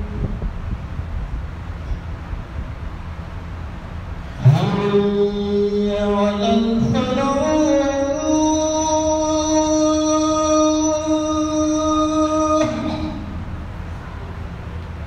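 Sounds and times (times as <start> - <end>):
low steady rumble: 0.0 - 15.0
man chanting a long note: 4.4 - 13.4.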